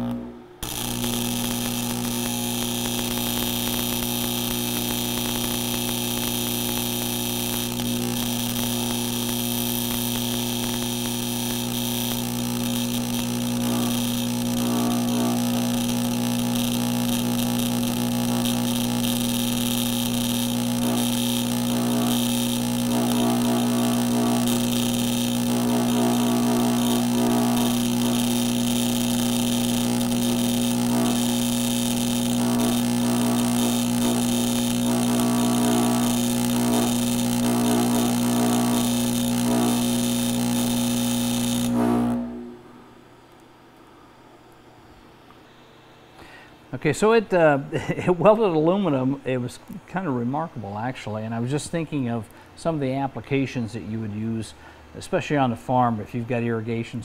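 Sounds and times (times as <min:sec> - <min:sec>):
welding arc buzz and hiss: 0:00.0 - 0:43.2.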